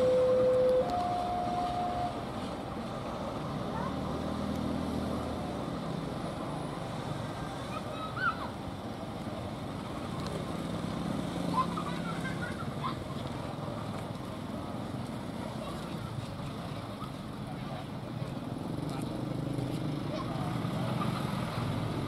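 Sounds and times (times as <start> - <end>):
diesel locomotive engine droning: 0.0 - 10.8.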